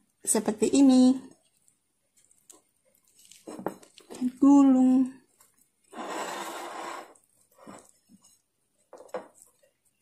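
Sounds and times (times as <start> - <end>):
wrap rustling scrape: 5.9 - 7.9.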